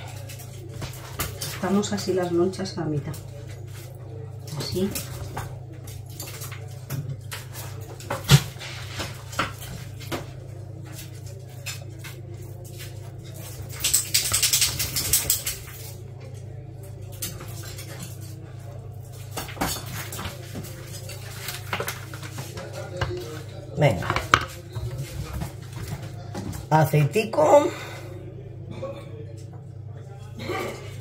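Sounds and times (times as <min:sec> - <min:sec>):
plates and cutlery clinking: 0:10.9 - 0:26.5.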